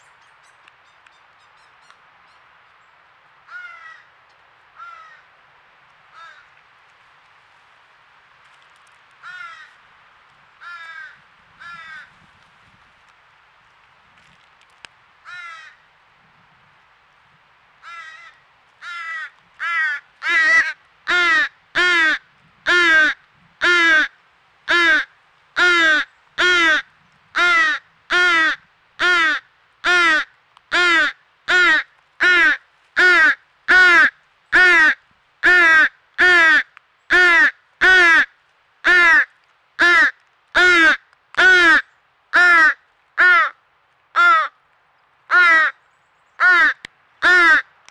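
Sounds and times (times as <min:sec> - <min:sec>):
crow fledgling begging caws: 0:03.5 - 0:04.1, 0:04.8 - 0:05.3, 0:06.1 - 0:06.5, 0:09.2 - 0:09.8, 0:10.6 - 0:12.1, 0:15.2 - 0:15.8, 0:17.8 - 0:24.1, 0:24.7 - 0:44.6, 0:45.3 - 0:45.8, 0:46.4 - 0:47.7.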